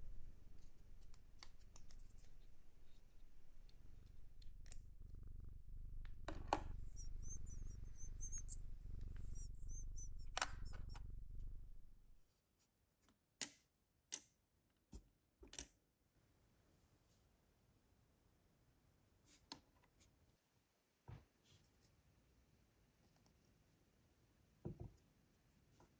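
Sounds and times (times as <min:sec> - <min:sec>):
low steady hum: 0:00.0 - 0:12.2
faint high squeaks: 0:06.3 - 0:11.8.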